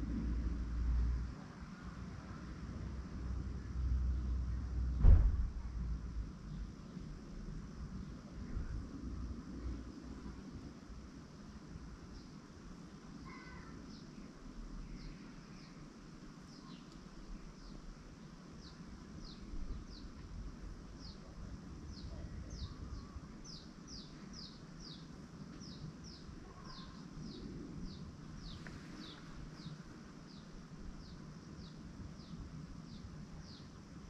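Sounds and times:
faint low background rumble: 0:00.0 - 0:34.0.

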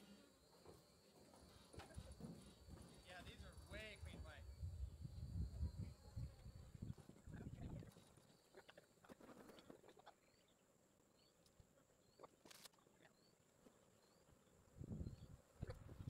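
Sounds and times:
faint knocks: 0:00.6 - 0:04.4.

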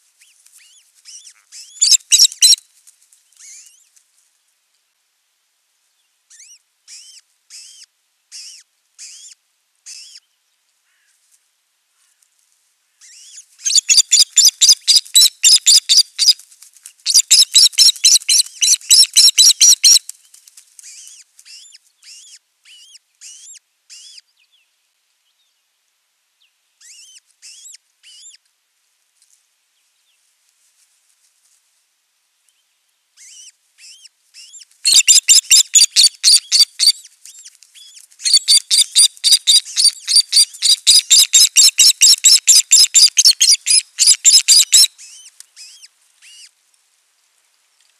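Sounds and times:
bird high whistled calls: 0:00.6 - 0:02.6, 0:13.0 - 0:16.4, 0:17.1 - 0:20.0, 0:26.8 - 0:28.3, 0:33.2 - 0:37.1, 0:37.8 - 0:46.5.

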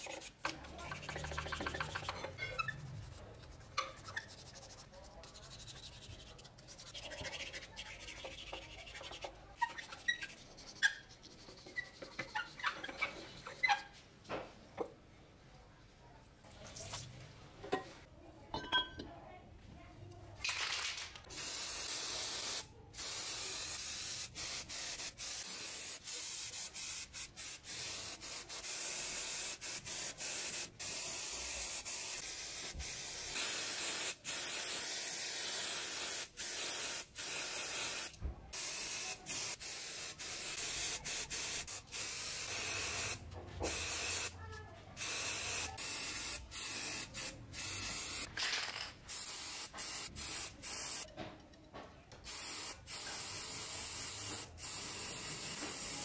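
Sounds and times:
spray paint hissing: 0:21.3 - 0:44.4, 0:45.0 - 0:48.3, 0:49.1 - 0:51.1, 0:52.3 - 0:56.0.

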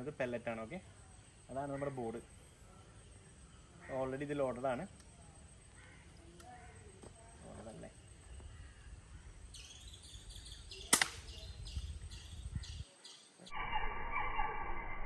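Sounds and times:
birds chirping: 0:00.0 - 0:15.0
air pistol firing: 0:10.9 - 0:11.4.

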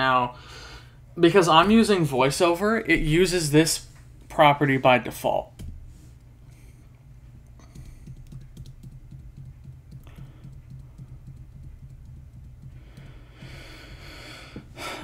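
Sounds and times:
keyboard typing clicks: 0:07.6 - 0:13.1.

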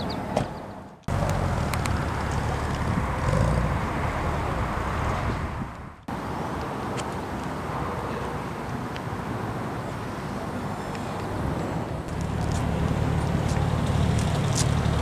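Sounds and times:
outdoor background noise: 0:00.0 - 0:15.0
car engine rumble: 0:00.1 - 0:06.4, 0:11.0 - 0:15.0.

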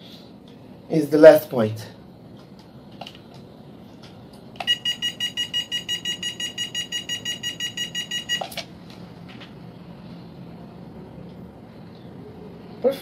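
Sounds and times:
rapid electronic beeping: 0:04.6 - 0:08.4.

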